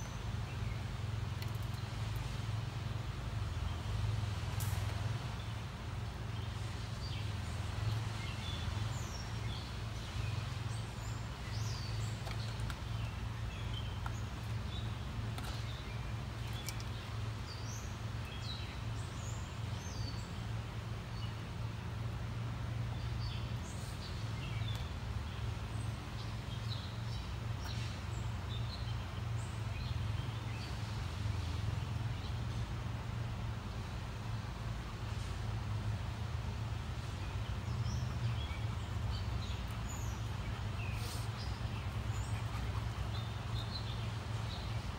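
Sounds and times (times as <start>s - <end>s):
faint clicks: 1.4s - 2.3s, 16.4s - 17.1s
small birds chirping: 5.3s - 22.0s, 22.6s - 44.9s.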